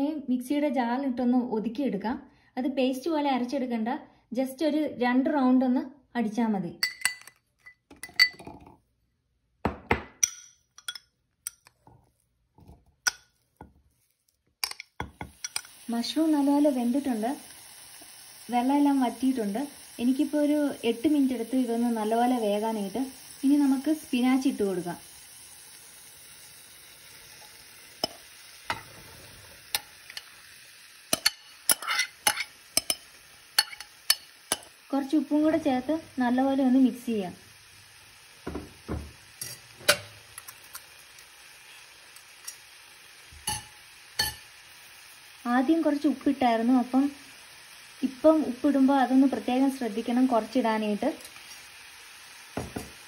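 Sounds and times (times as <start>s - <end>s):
spoon clinking on metal jar: 6.8s - 8.6s, 10.2s - 11.8s, 31.1s - 34.7s, 39.4s - 40.9s, 43.4s - 44.4s
mushrooms sizzling in pan: 11.5s - 53.0s
spatula scraping metal pan: 31.2s - 33.0s
spinach dropped into pan: 52.6s - 53.0s.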